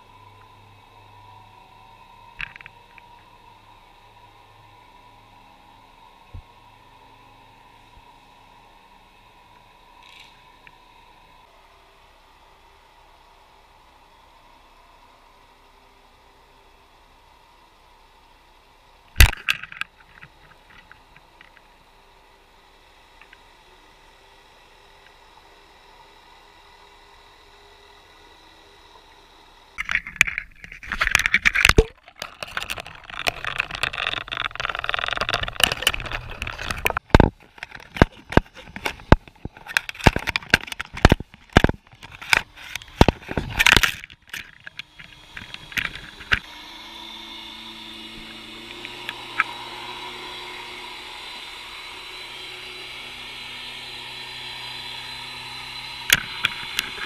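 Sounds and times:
camera housing knocking and scraping: 0:19.2 - 0:21.0, 0:29.8 - 0:46.4.

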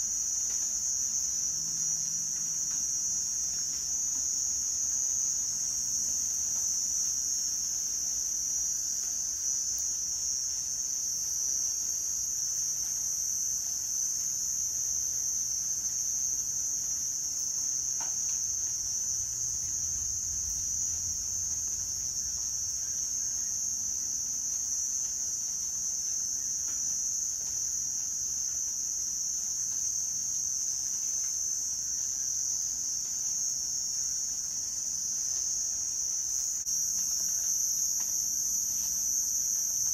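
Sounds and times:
insects trilling: 0:00.0 - 0:39.9.

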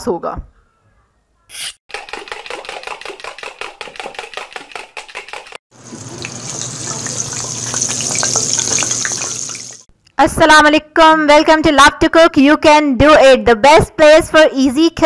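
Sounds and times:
steady hiss of running tap: 0:05.8 - 0:09.9.

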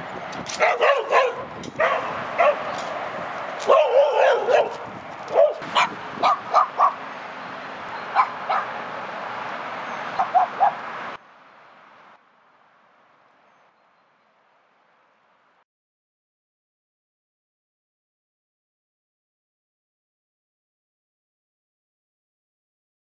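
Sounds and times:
dog barking: 0:00.6 - 0:02.7, 0:03.6 - 0:07.0, 0:08.1 - 0:08.8, 0:10.2 - 0:10.8.

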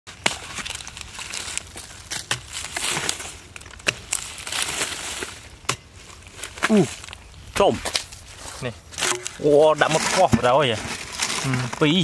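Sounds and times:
clods crunching and crumbling: 0:00.1 - 0:12.0.

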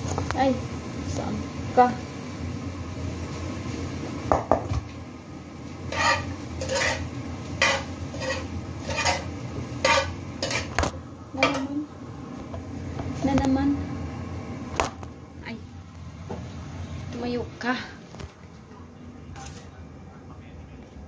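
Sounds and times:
utensil scraping metal pot: 0:05.9 - 0:10.8.

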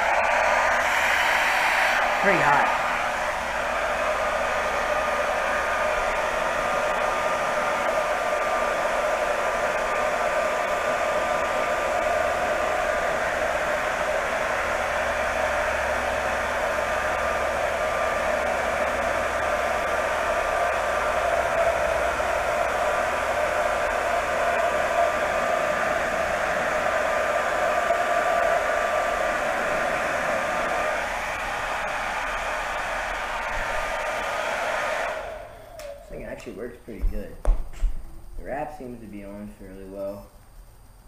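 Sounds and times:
hair dryer blowing: 0:00.0 - 0:37.3.

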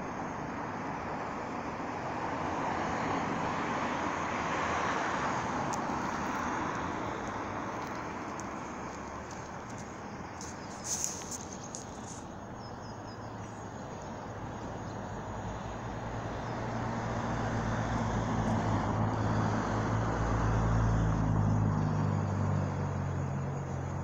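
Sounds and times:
traffic rumble: 0:00.0 - 0:24.0
vehicle passing: 0:14.4 - 0:23.9.

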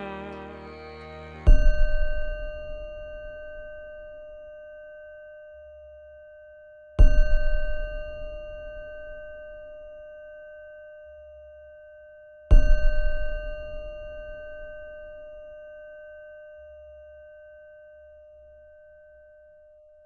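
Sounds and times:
deep thud of bell strike: 0:01.5 - 0:04.2, 0:12.5 - 0:15.2.

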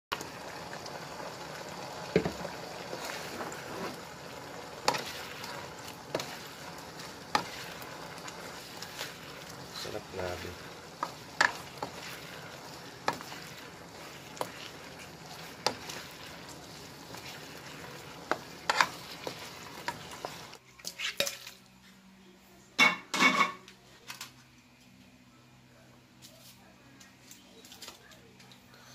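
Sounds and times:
food sizzling in a wok: 0:00.1 - 0:20.6
spatula tapping and scraping pan: 0:04.8 - 0:09.2, 0:10.9 - 0:12.3, 0:13.0 - 0:20.6.

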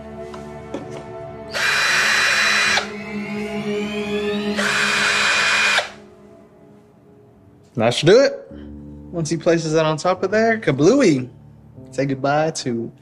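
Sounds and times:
cordless drill driving screw: 0:01.5 - 0:02.9, 0:04.4 - 0:06.0.

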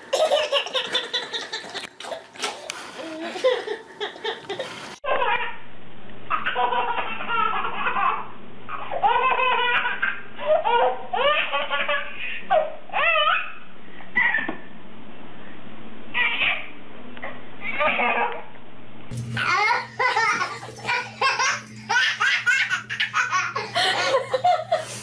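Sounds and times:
baby laughing: 0:00.1 - 0:05.6, 0:06.3 - 0:13.6, 0:19.4 - 0:24.9.

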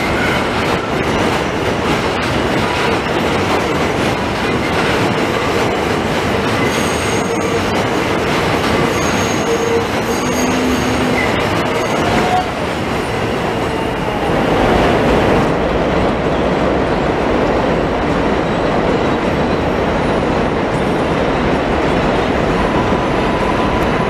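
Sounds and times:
train wheels on track: 0:00.0 - 0:24.0.

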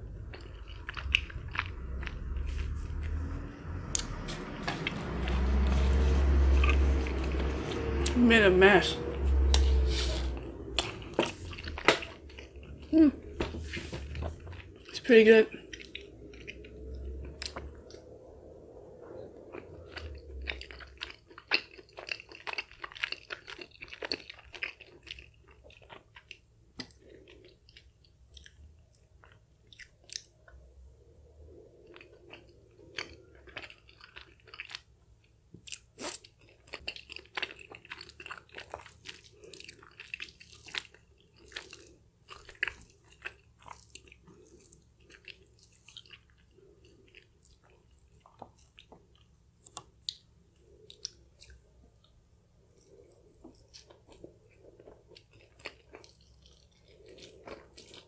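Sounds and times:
wet chewing clicks: 0:00.2 - 0:03.2, 0:31.8 - 0:58.0.

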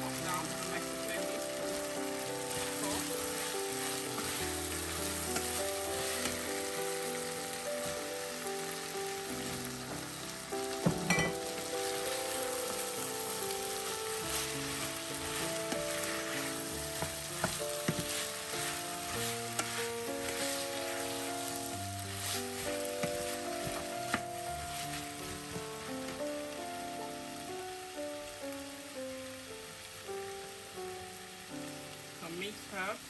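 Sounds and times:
vegetables sizzling in oil: 0:00.0 - 0:33.0
knocking against pan: 0:10.8 - 0:11.5, 0:17.0 - 0:18.1.

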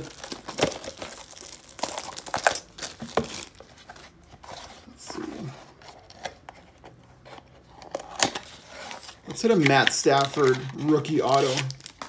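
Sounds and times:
plastic wrapping crinkling and tearing: 0:00.0 - 0:04.0, 0:07.9 - 0:12.0.

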